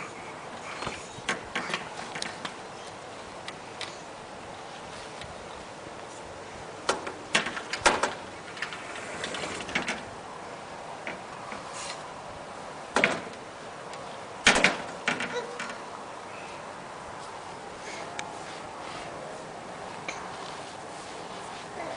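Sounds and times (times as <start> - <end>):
glass door frame knocking and rattling: 6.9 - 10.2, 12.9 - 13.4, 14.4 - 15.8.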